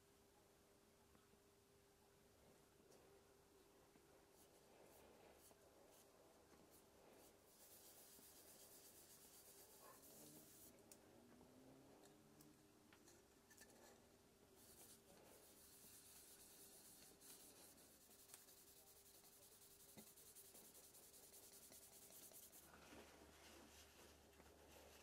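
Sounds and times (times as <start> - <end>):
hand-sanding wood: 7.5 - 10.7, 14.6 - 22.7.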